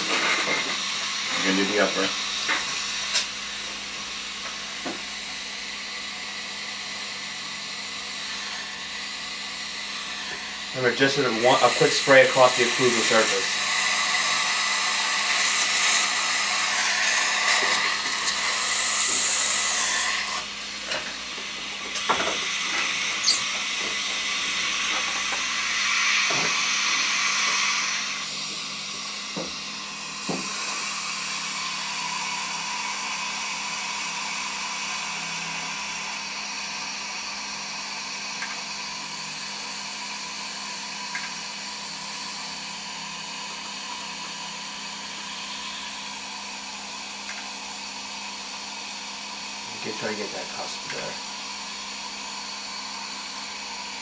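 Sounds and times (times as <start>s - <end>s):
dental suction hissing: 8.1s - 20.4s, 21.9s - 38.2s.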